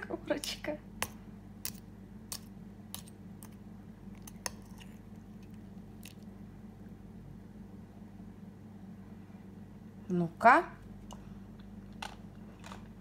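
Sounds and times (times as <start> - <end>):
steady low hum: 0.0 - 13.0
spoon cracking sugar crust: 0.4 - 6.4.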